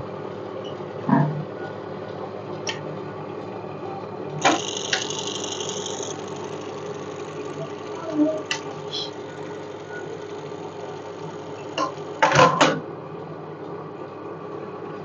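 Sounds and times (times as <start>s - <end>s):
sharp clicks: 4.4s - 8.7s
high whine: 4.4s - 12.2s
sewing machine motor hum: 4.4s - 12.5s
machine clack: 4.4s - 12.8s.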